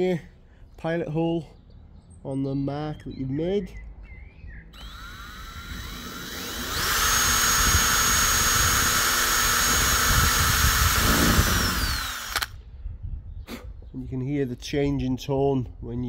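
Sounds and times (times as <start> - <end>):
cordless drill boring: 4.8 - 12.6.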